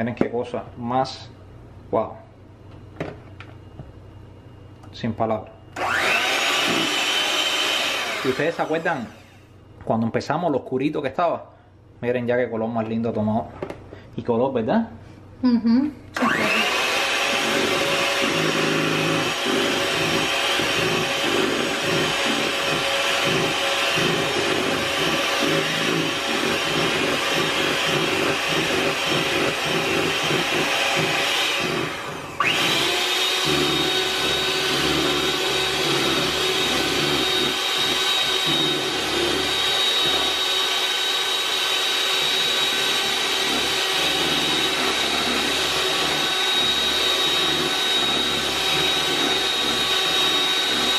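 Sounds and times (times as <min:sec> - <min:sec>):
electric hand mixer whining: 0:05.8 - 0:09.4, 0:16.2 - 0:50.9.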